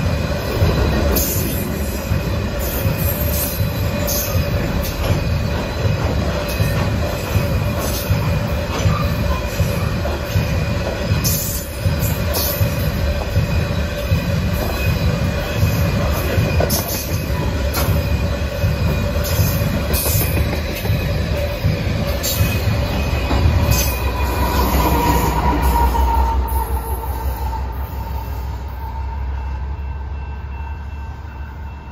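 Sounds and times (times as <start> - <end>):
rail clacks: 0.0 - 31.9
train wheels rumbling on rail: 0.0 - 31.9.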